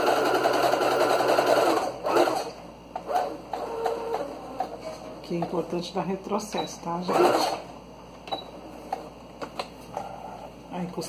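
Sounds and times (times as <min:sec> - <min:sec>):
sewing machine stitching: 0:00.0 - 0:04.8, 0:07.1 - 0:07.6.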